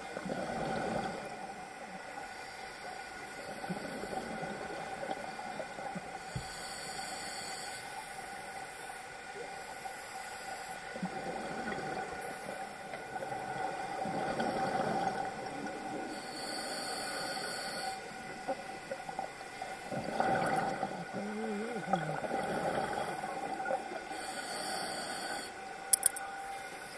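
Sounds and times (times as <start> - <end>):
regulator hissing inhalations: 6.2 - 8.1, 16.1 - 18.1, 24.1 - 25.6
steady hum: 15.5 - 26.9
bubbling exhalations: 20.0 - 23.8.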